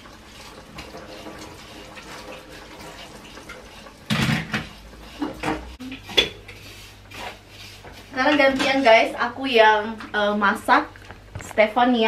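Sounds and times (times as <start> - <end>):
wooden spoon stirring in pan: 0.0 - 10.6
pots and utensils knocking: 2.8 - 6.4.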